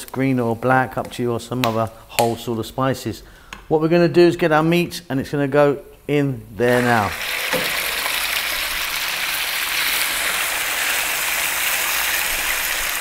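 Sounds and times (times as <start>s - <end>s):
meat sizzling in frying pan: 6.7s - 13.0s.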